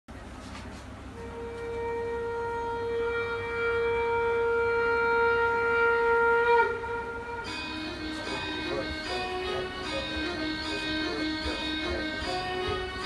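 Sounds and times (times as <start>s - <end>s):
wind instrument long note: 1.1s - 13.0s
dance music: 7.6s - 13.0s.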